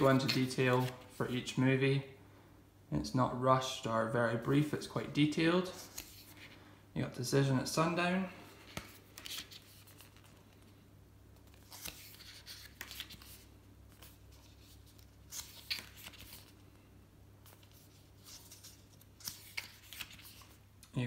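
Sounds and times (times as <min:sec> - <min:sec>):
paper pages turning: 0:00.0 - 0:01.5, 0:05.6 - 0:06.6, 0:08.4 - 0:10.8, 0:11.4 - 0:16.8, 0:17.4 - 0:20.6.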